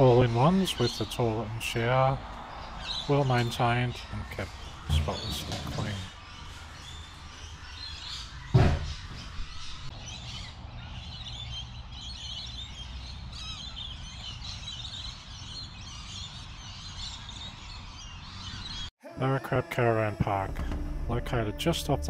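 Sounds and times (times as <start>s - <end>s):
birds chirping and calling: 0.0s - 18.9s
low steady rumble: 20.1s - 22.0s
sharp thump: 20.2s - 21.4s.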